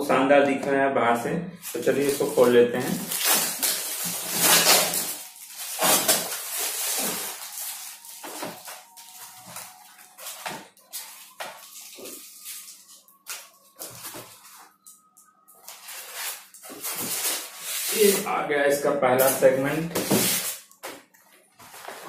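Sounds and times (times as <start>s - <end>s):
rustles of tape and cardboard: 1.6s - 14.8s, 15.6s - 18.3s
packing tape ripping off cardboard: 1.7s - 14.6s, 15.6s - 18.2s, 19.2s - 20.7s.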